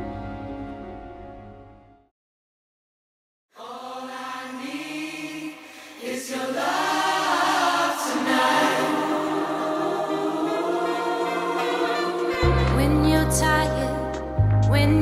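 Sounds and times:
choir singing sustained notes: 0:03.6 - 0:14.4.

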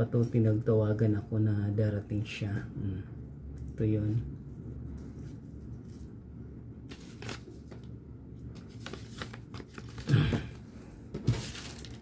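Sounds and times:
gift pouch crinkling: 0:06.9 - 0:07.9, 0:08.5 - 0:10.6, 0:11.4 - 0:12.0.

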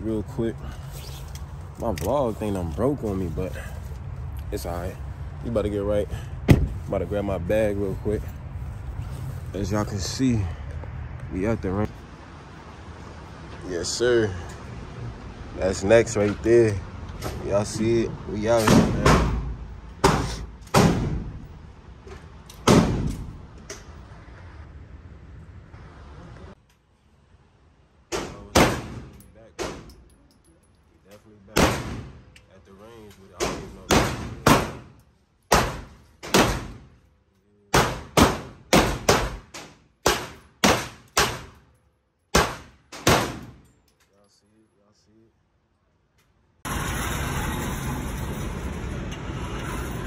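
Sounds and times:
loud gunshots echoing: 0:31.6 - 0:32.2.

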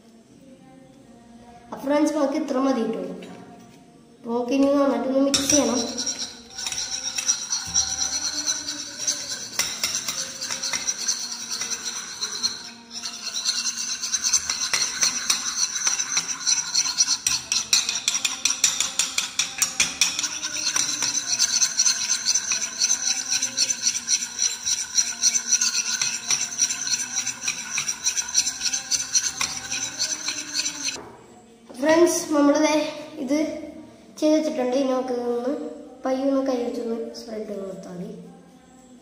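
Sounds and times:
spoon scraping plastic bowl: 0:05.4 - 0:31.0.

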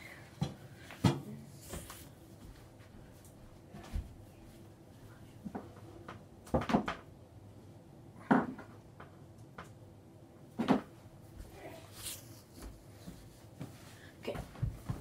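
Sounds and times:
objects knocking and clunking: 0:05.4 - 0:07.1, 0:08.2 - 0:09.8, 0:10.5 - 0:11.0.

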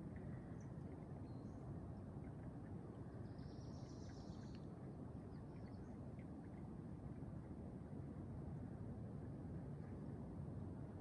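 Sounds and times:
faint scattered ticks: 0:00.0 - 0:06.7.

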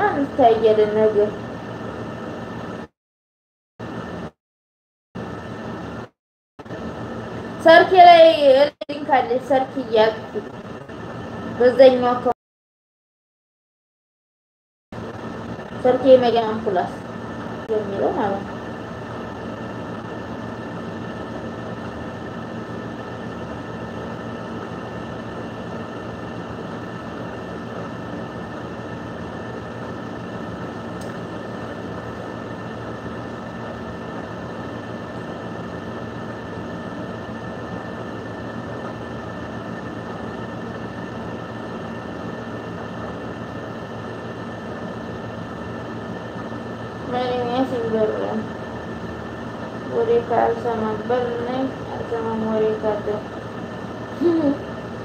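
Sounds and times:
mechanical hum and hiss: 0:00.0 - 0:02.9, 0:03.8 - 0:04.3, 0:05.2 - 0:12.4, 0:15.0 - 0:55.0
faint constant tones: 0:15.0 - 0:55.0.

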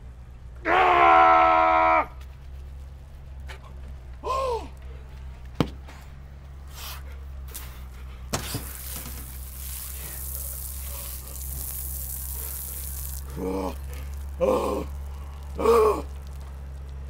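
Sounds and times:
shower spraying water: 0:08.4 - 0:17.0
short groan: 0:12.3 - 0:16.6.

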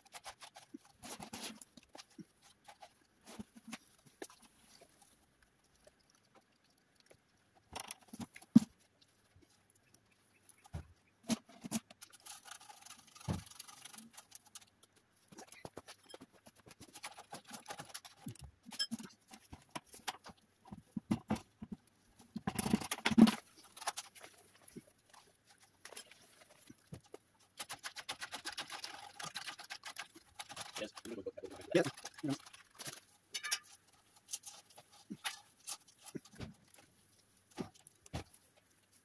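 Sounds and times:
concrete pouring: 0:27.6 - 0:36.5.

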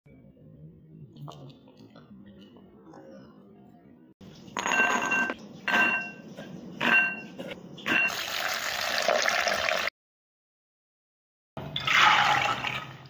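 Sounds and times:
kitchenware clattering: 0:04.2 - 0:08.4.

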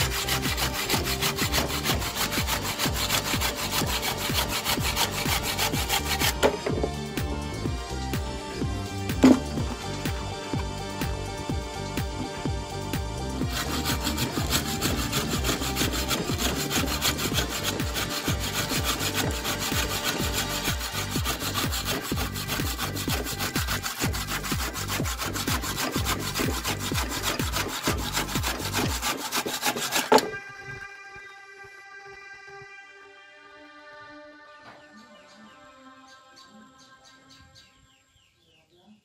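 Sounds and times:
hand saw cutting wood: 0:00.0 - 0:07.4, 0:08.8 - 0:30.5.

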